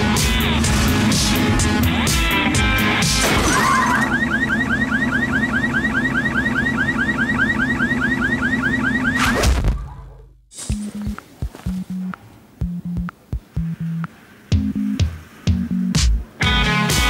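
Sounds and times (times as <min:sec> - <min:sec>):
car alarm rising chirps: 0:02.9 - 0:09.4
steady low hum: 0:09.8 - 0:16.4.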